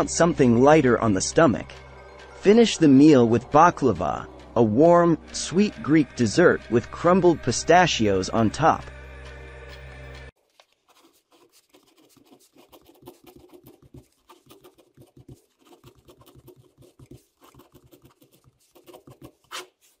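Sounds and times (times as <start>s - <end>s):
ballpoint pen scratching on paper: 10.5s - 20.0s.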